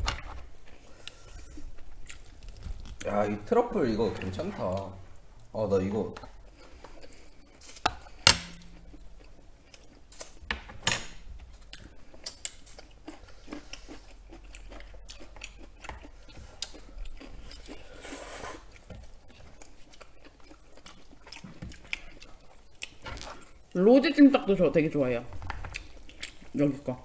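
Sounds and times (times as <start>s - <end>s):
chewing and wet mouth sounds: 0.6s - 3.2s, 6.2s - 10.4s, 11.4s - 23.7s, 25.5s - 26.8s.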